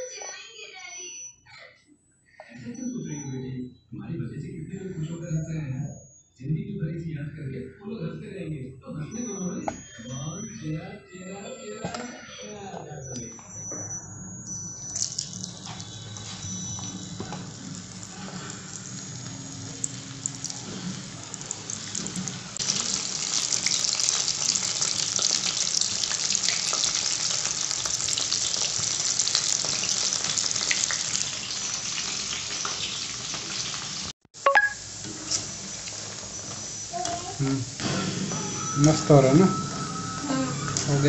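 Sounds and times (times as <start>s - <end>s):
food deep-frying in hot oil: 14.8s - 34.1s, 34.8s - 37.7s.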